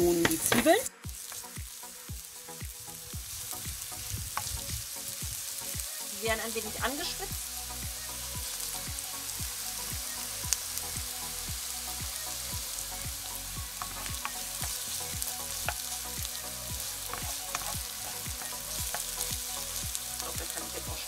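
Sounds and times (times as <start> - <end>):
onions sizzling in oil: 0.0 - 21.0
wooden spoon stirring: 13.7 - 20.8.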